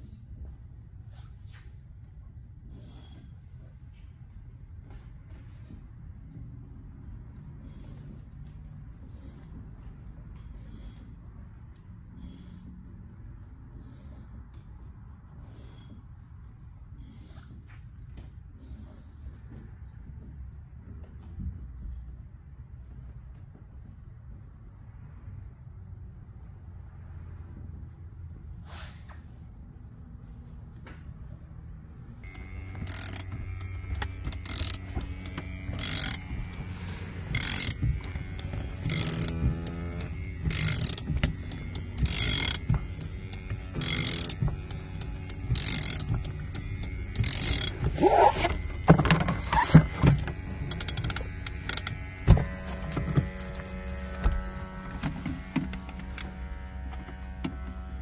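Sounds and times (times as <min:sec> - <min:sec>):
cord tool winding strokes: 0:06.2 - 0:19.3, 0:32.2 - 0:58.0
low steady hum: 0:31.8 - 0:58.0.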